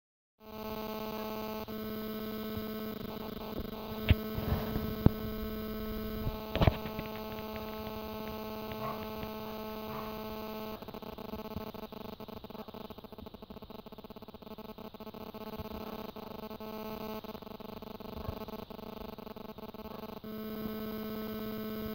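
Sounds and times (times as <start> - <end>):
electrical hum: 0.4 - 21.9
short rough bursts: 3.9 - 10.4
sharp clicks: 6.2 - 9.6.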